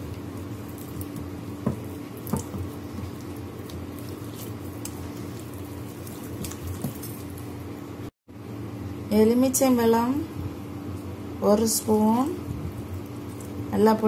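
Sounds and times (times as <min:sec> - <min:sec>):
wet squelching of meat: 0:00.0 - 0:07.6
steady low hum: 0:00.0 - 0:14.0.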